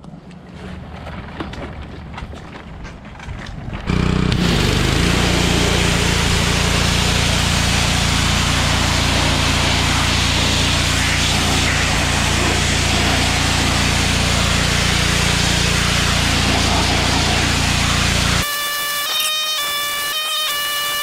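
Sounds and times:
pressure washer running: 3.9 - 21.0
water jet hissing on metal: 4.0 - 18.5.

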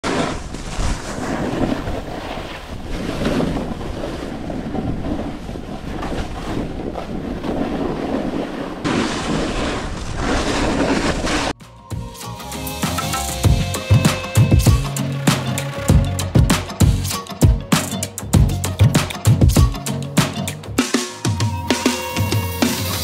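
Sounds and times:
snowboard scraping over snow: 0.0 - 11.6
wind on microphone: 0.1 - 11.4.

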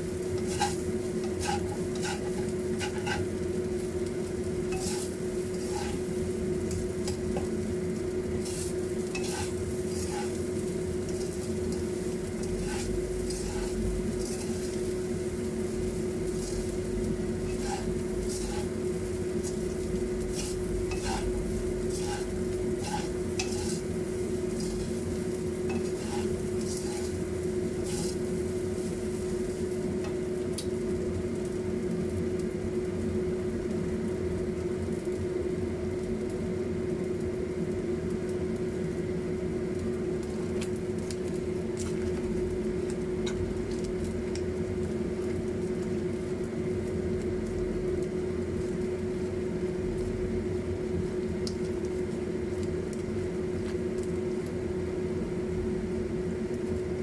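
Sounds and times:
oil bubbling and sizzling: 0.0 - 57.0
steady electrical hum: 0.0 - 57.0.

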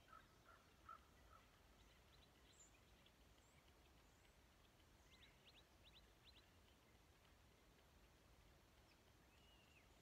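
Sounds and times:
faint bird chirps: 8.8 - 10.0.

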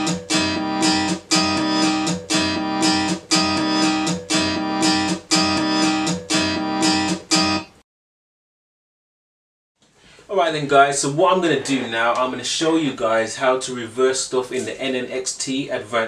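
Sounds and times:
sampled guitar loop: 0.0 - 7.8.

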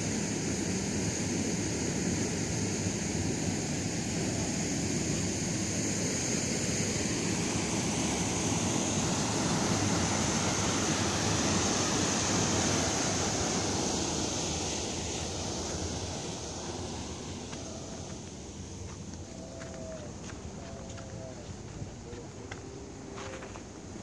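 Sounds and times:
high-pitched hiss: 0.0 - 24.0.

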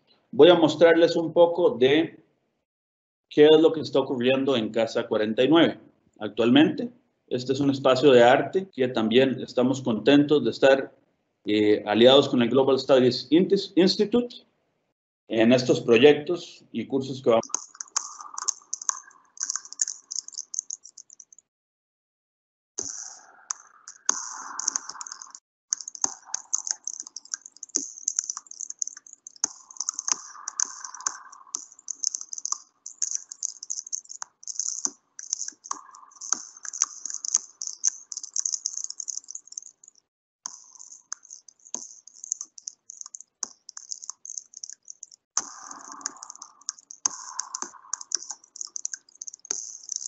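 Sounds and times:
irregular clicking and rattling: 17.4 - 21.5, 22.8 - 50.0.

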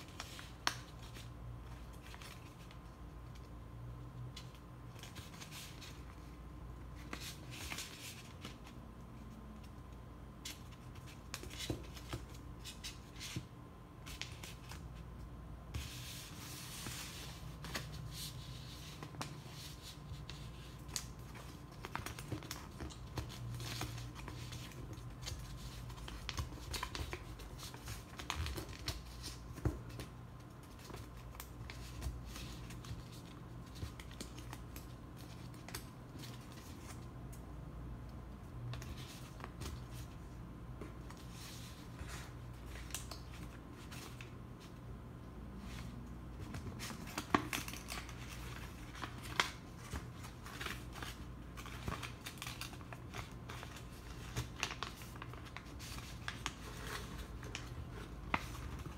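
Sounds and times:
paper rustling and crinkling: 15.7 - 37.0, 45.6 - 58.9.

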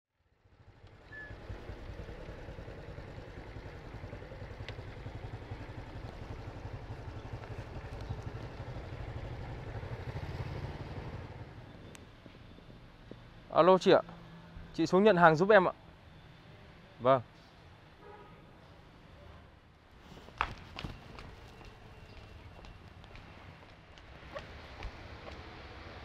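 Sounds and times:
motorbike engines in traffic: 0.2 - 26.0.

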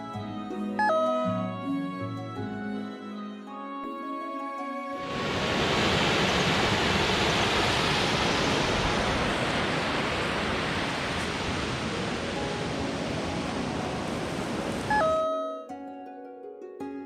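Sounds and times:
water rushing over cascade: 5.0 - 14.9.

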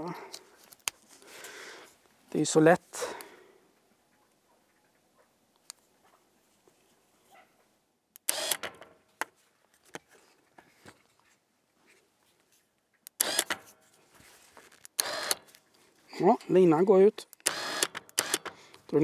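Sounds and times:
electric winch whirring: 8.3 - 8.8, 15.0 - 15.4, 17.4 - 18.5.

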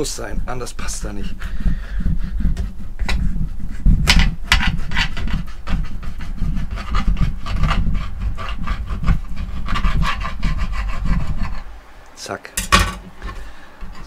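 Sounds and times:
low steady rumble: 0.0 - 14.0
knife sawing through eel: 4.5 - 11.7.

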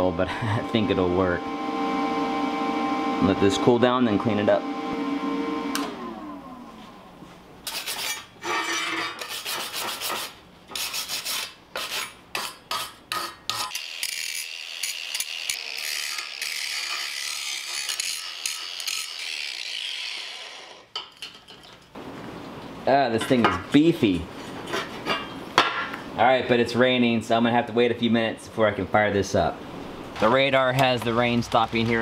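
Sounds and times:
wire brush scrubbing steel: 7.7 - 20.8
angle grinder grinding metal: 13.5 - 21.0.

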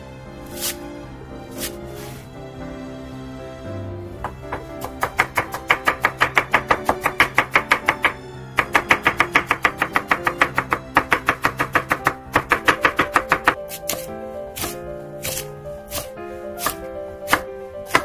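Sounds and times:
background music: 0.0 - 18.0
knife chopping on wooden board: 4.2 - 18.0.

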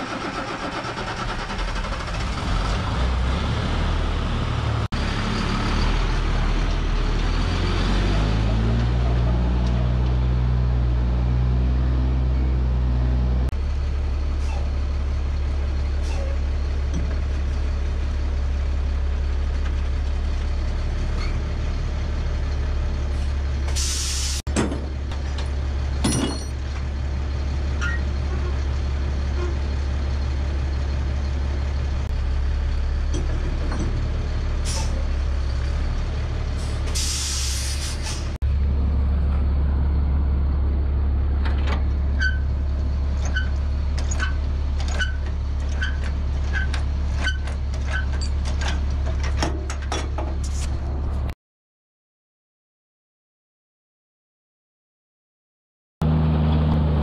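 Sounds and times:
dump truck idling: 0.0 - 11.8, 12.7 - 51.3
air brake hissing: 23.7 - 24.4, 34.6 - 35.0, 36.6 - 38.4.

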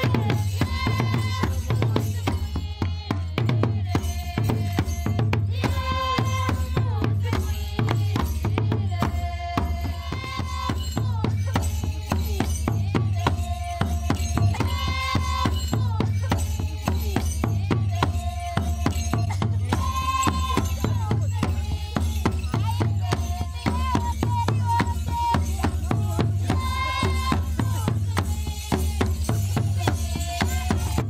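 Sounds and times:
drums: 0.0 - 31.0.

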